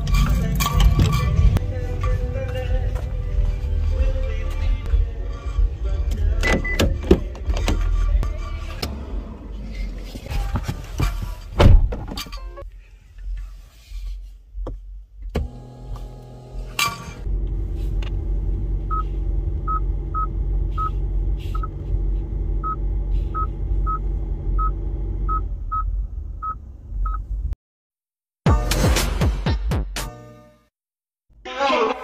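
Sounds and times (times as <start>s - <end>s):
car engine idling: 17.3s - 27.4s.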